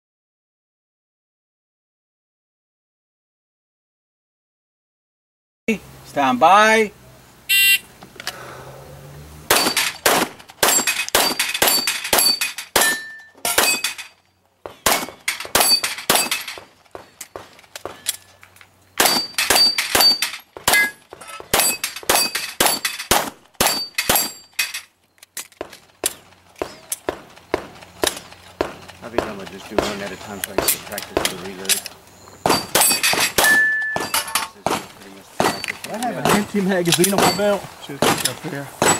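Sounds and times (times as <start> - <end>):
steel plates ringing when hit: 9.5 - 10.0, 10.7 - 14.2, 32.5 - 34.6, 37.0 - 37.6
rapid pistol fire: 9.5 - 11.8.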